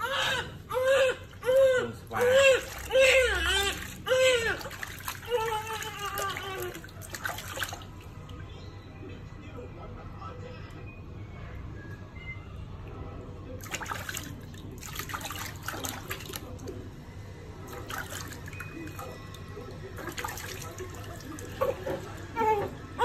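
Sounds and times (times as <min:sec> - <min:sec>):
water splashing in a plastic tub: 0:01.6 - 0:08.4, 0:13.6 - 0:16.8, 0:17.6 - 0:22.2.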